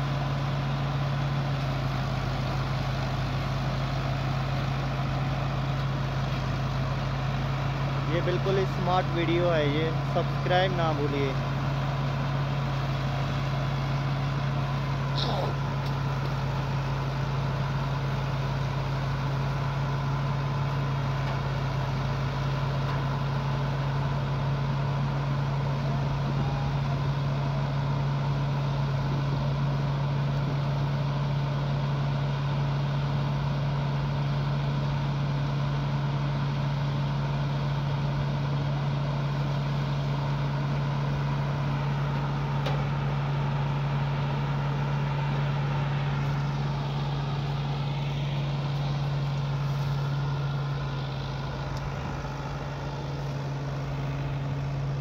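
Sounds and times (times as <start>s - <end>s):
diesel thresher running: 0.0s - 55.0s.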